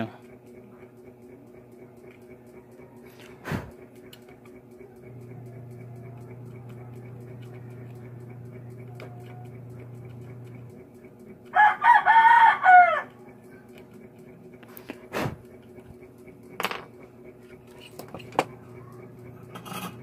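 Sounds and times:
steady low hum: 0.0 - 20.0
rooster crowing: 2.4 - 3.5, 11.4 - 13.3.

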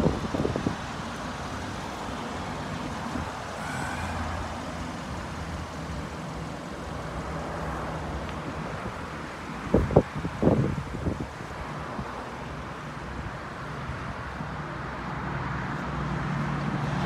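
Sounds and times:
rumble of motor vehicles: 0.0 - 17.0.

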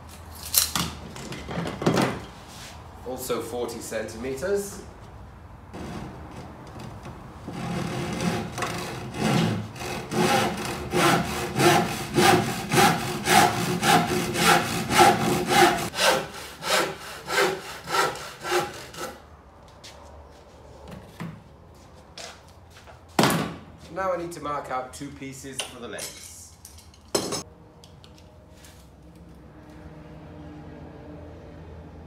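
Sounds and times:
handsaw crosscutting a board: 7.5 - 19.2.

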